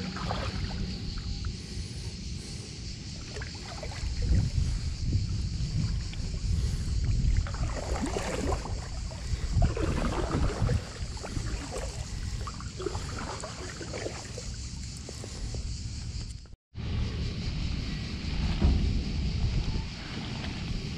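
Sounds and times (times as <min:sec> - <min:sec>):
paddle splashing in water: 0:00.0 - 0:01.4, 0:03.2 - 0:05.0, 0:05.6 - 0:15.2
wind rumble on microphone: 0:00.0 - 0:20.9.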